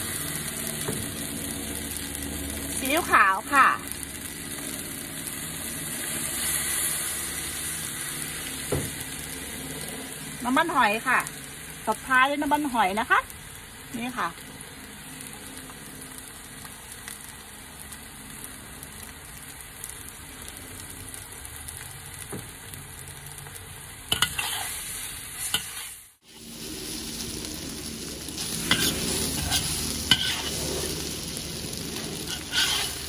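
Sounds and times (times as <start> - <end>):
food sizzling in a wok: 0.0 - 33.0
metal spatula scraping wok: 5.8 - 7.8, 24.1 - 26.1, 26.8 - 33.0.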